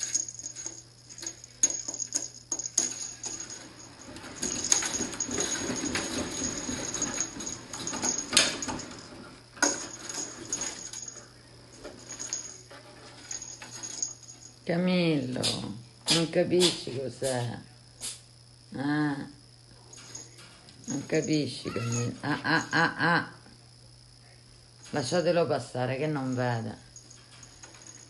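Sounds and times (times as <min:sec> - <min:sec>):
cat wheel rolling rumble: 0:00.0 - 0:14.2.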